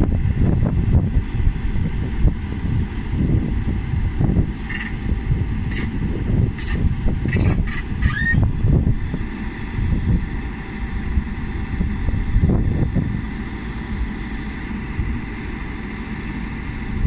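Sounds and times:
diesel engine rumbling: 0.0s - 17.0s
hydraulics moving: 4.4s - 12.0s.

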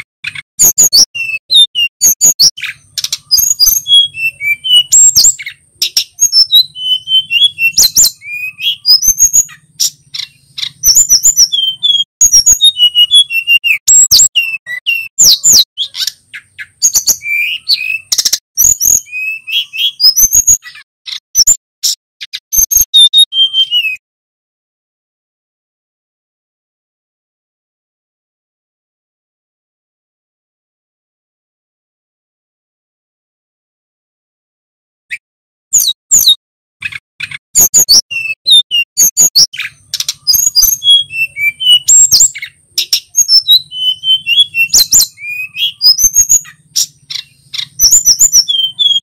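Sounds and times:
bird singing whistled phrases: 0.3s - 24.0s, 35.1s - 49.0s.

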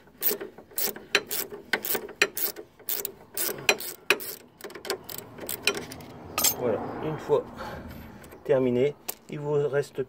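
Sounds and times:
ratchet spanner clicking: 0.2s - 6.0s.

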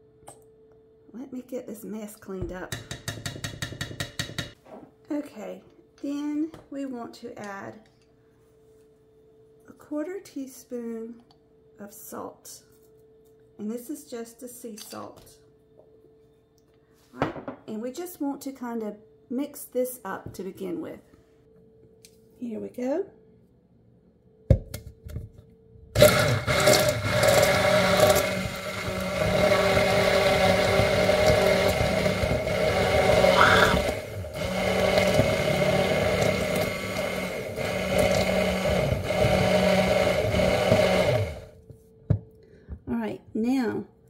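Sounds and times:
immersion blender whirring: 26.0s - 41.5s.

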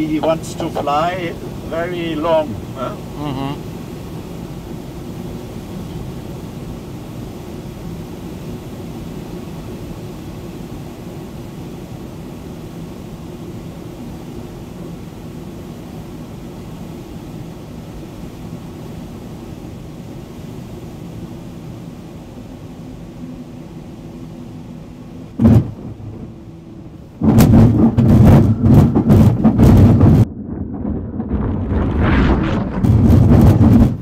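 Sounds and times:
airflow noise in cockpit: 0.0s - 30.3s
wheel touching down thump: 25.4s - 26.4s, 27.2s - 30.3s
wheel rumbling over rough grass: 25.4s - 34.0s.

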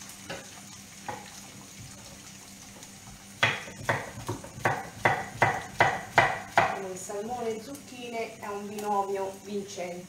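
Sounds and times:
food sizzling in a pan: 0.0s - 10.0s
knife chopping on wooden board: 3.4s - 6.8s.

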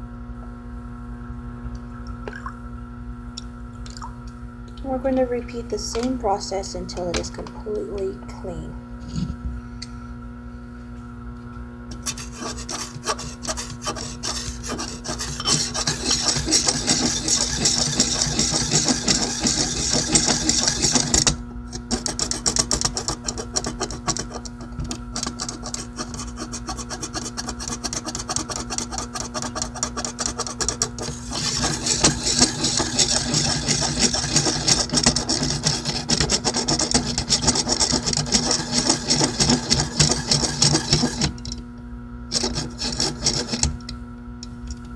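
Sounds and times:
rasping rubbing on knife blade: 11.9s - 41.3s, 42.3s - 43.7s.

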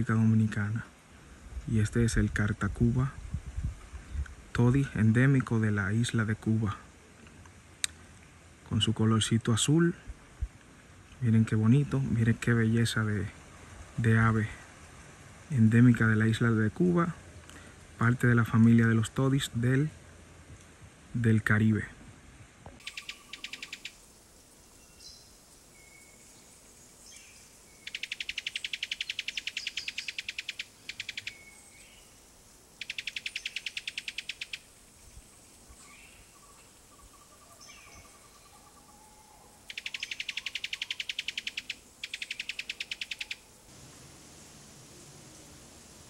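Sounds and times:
whistled bird calls: 22.8s - 24.0s, 27.1s - 32.2s, 32.8s - 34.6s, 35.8s - 43.5s.

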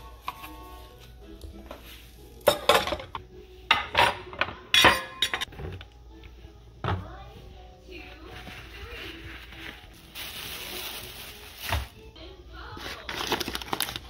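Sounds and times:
dishes clattering in steel sink: 2.4s - 5.5s.

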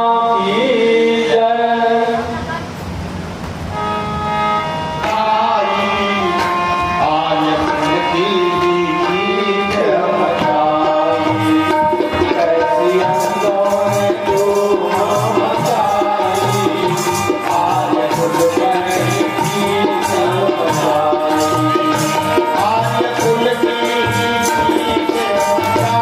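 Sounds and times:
harmonium playing chords: 3.6s - 26.0s
percussion beat: 6.4s - 26.0s.

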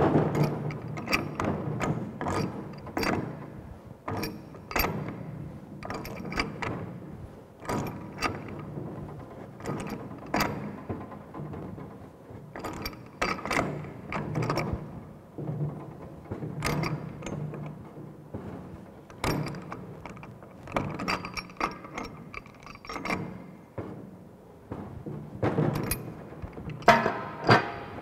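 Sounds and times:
pipe wrenches clanking on metal: 0.3s - 3.3s, 4.1s - 6.7s, 19.1s - 23.5s, 25.6s - 28.0s.

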